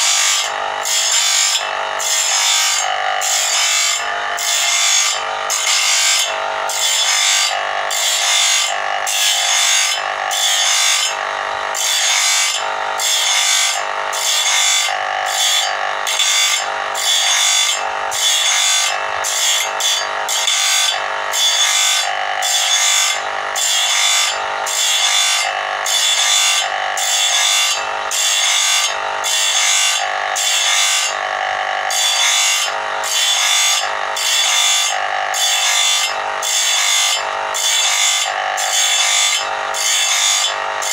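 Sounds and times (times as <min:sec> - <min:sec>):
grinding wheel rasping on steel: 0:00.0 - 0:40.9.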